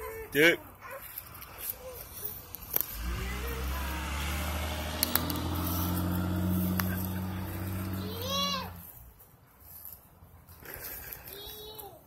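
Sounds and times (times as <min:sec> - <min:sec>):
vehicle engine humming: 0:01.3 - 0:09.1
sharp clicks: 0:05.0 - 0:05.5.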